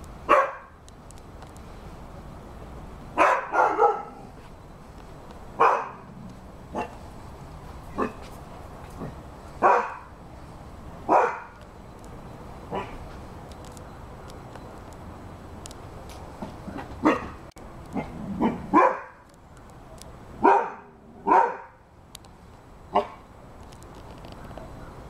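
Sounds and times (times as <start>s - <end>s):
dog barking: 0.3s - 0.7s, 3.2s - 4.2s, 5.6s - 6.1s, 9.6s - 10.1s, 11.1s - 11.5s, 12.7s - 13.0s, 17.0s - 17.4s, 18.0s - 19.2s, 20.4s - 21.8s, 22.9s - 23.2s.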